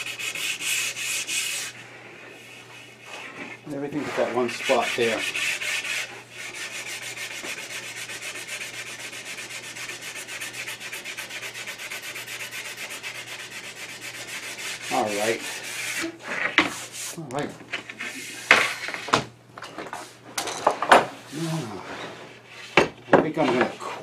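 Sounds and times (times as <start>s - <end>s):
sandpaper rubbing on wood: 0.0s - 1.8s, 2.4s - 16.1s.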